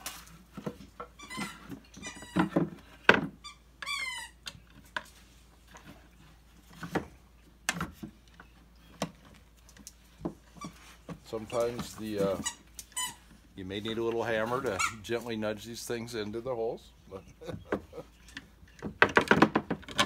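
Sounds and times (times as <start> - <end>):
wooden chair squeaking: 0.6 - 5.1, 10.4 - 13.4.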